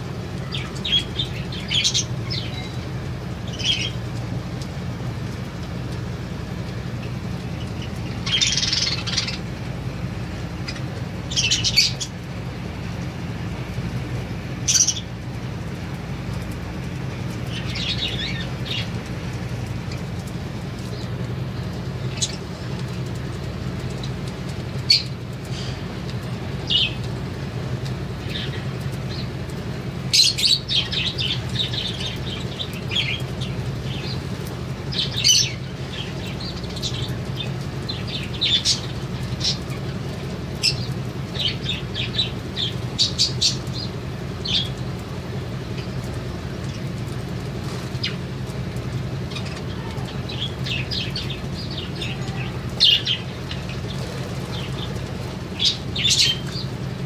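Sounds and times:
budgerigars chirping: 0:00.5 - 0:02.8, 0:07.8 - 0:09.4, 0:10.6 - 0:12.1, 0:50.3 - 0:56.7.

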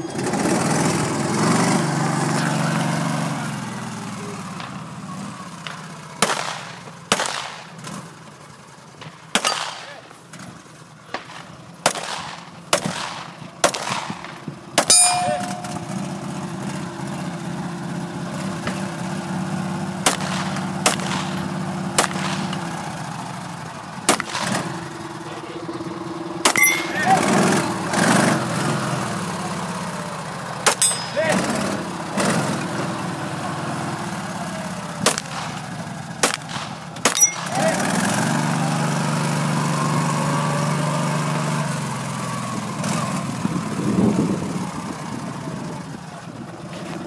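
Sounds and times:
utility vehicle engine running: 0:00.0 - 0:47.0
pistol shots: 0:05.6 - 0:07.8, 0:09.0 - 0:10.0, 0:11.1 - 0:15.7, 0:20.0 - 0:22.7, 0:24.1 - 0:24.8, 0:35.0 - 0:37.7
metallic ring of struck steel: 0:14.9 - 0:16.2, 0:26.5 - 0:27.6, 0:30.7 - 0:31.8, 0:37.1 - 0:37.8.

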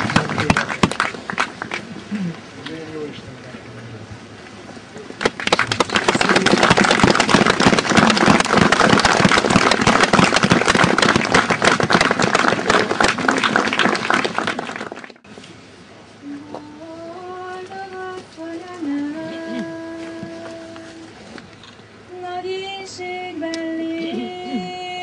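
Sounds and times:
crowd applauding: 0:00.0 - 0:02.0, 0:05.2 - 0:15.2
woman singing: 0:16.2 - 0:21.2, 0:22.1 - 0:25.0.

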